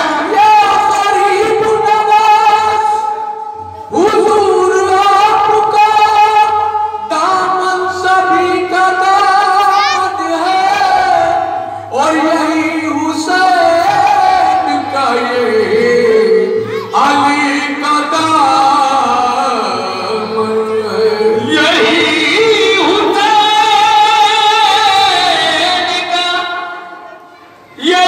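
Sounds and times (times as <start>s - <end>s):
person singing devotional song: 0.0s - 27.0s.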